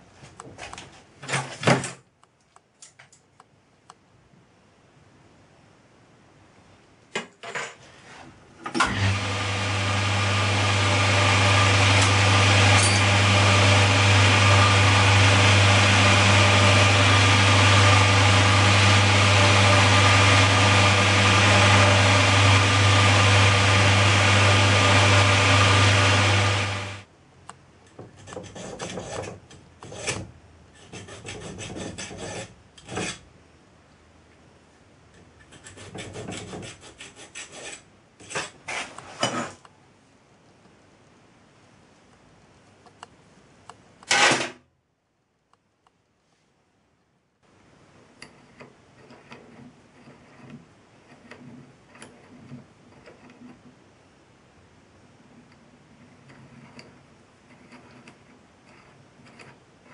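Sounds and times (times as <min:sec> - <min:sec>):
bench drill motor humming: 0:08.8 - 0:27.0
hand file rasping on metal: 0:28.2 - 0:33.2, 0:35.4 - 0:38.6, 0:48.2 - 0:53.6, 0:56.0 - 0:59.9.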